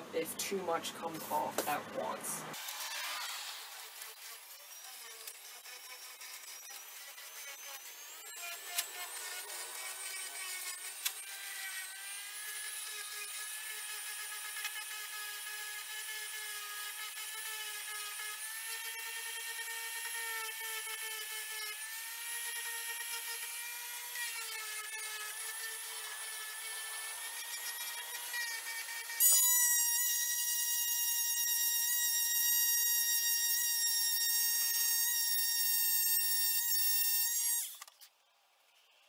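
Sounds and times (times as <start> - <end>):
orbital sander whine: 2.5 - 37.9.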